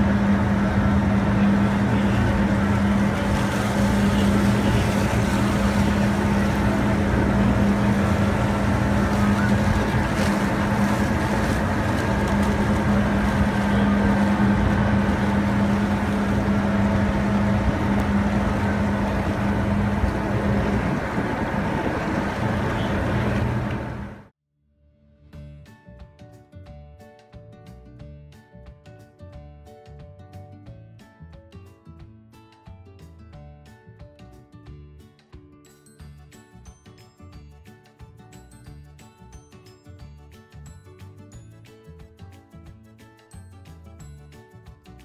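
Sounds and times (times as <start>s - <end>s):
wind noise: 0.0s - 24.2s
motorboat engine droning: 0.0s - 24.3s
rushing water: 0.1s - 24.3s.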